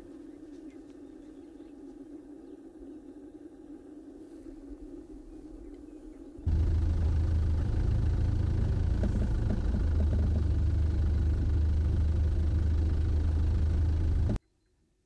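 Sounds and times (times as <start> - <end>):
engine idling: 6.5 - 14.4.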